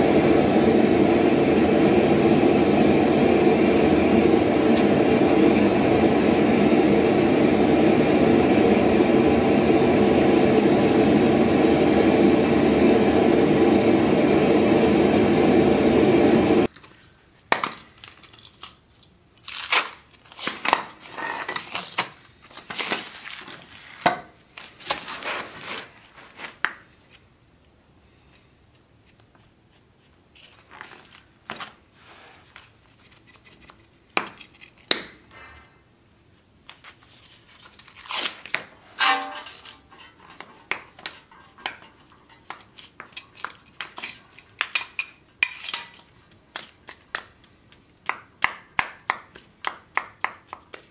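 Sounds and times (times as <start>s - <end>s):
gas burner roaring: 0.0s - 16.7s, 38.8s - 46.1s
duct tape tearing: 19.4s - 24.0s, 24.6s - 26.6s, 37.6s - 39.8s
metal box clinking and scraping: 39.0s - 42.5s.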